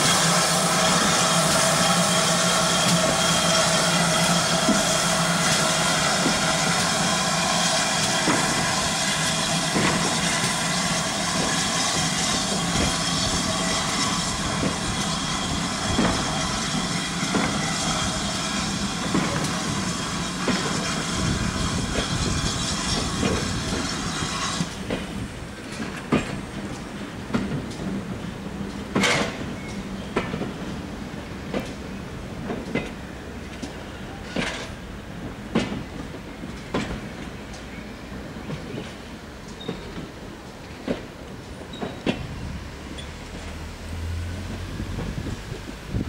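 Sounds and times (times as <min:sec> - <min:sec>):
steam hissing: 0:00.0 - 0:27.3.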